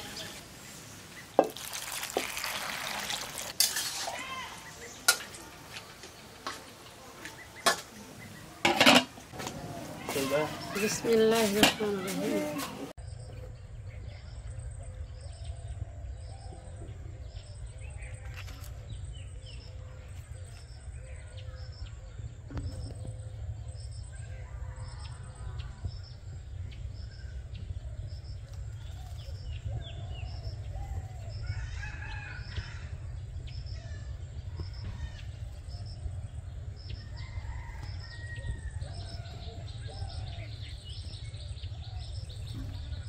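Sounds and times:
birds calling: 0.0 - 43.0
low steady rumble: 13.0 - 43.0.

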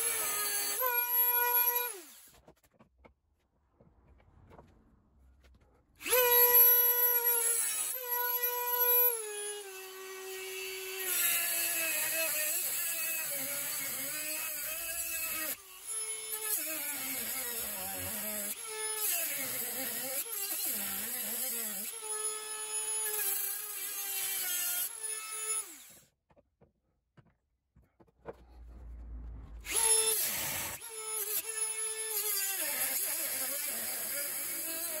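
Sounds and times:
rotary tool whining: 28.3 - 35.0.

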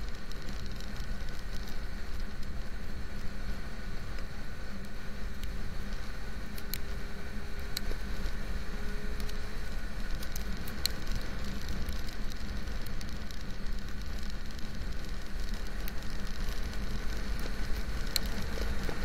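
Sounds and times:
raindrops ticking on camera: 0.0 - 3.3, 10.0 - 19.0
motorcycle engine and wind rumble: 0.0 - 19.0.

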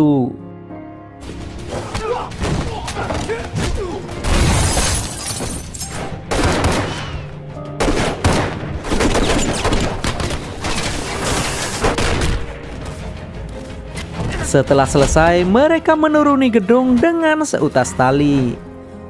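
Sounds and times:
action music: 0.5 - 19.0
rapid gunshots: 6.3 - 7.2.

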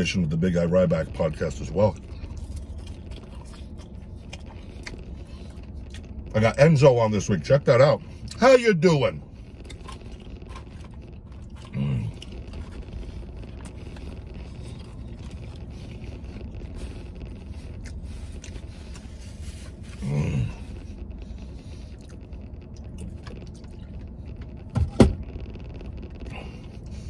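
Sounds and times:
low rumble in truck cab: 0.0 - 27.0
person grunting: 20.0 - 20.6.

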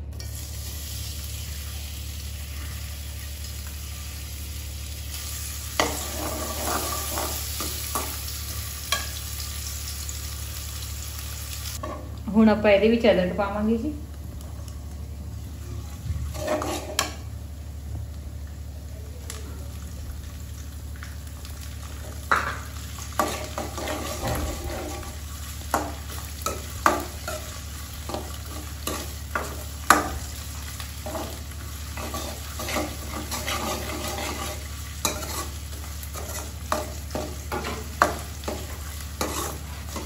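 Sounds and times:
onions sizzling: 0.0 - 40.0
metal ladle clinking and scraping pan: 16.3 - 17.2, 32.0 - 38.6, 39.2 - 40.0.

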